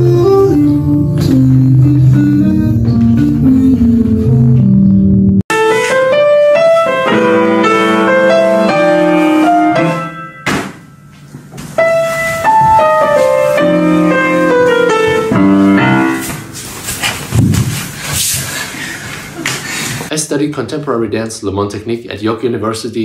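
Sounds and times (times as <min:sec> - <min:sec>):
solo piano playing: 0:00.0 - 0:16.6.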